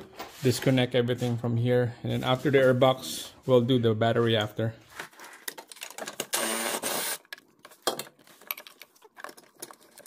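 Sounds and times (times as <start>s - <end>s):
tools and plastic parts clicking: 5.1s - 10.0s
cordless power tool whirring: 6.3s - 7.3s.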